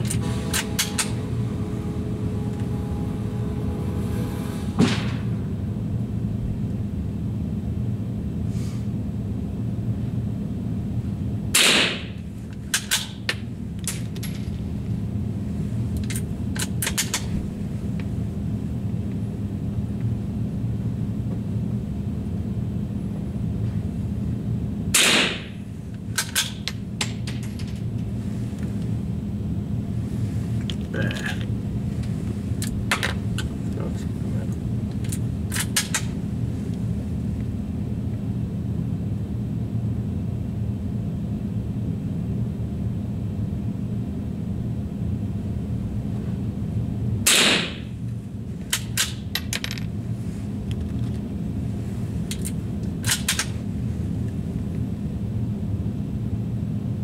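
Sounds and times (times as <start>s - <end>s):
steady low hum: 0.0s - 57.0s
rifle shots: 11.6s - 12.1s, 25.0s - 25.5s, 47.3s - 47.8s.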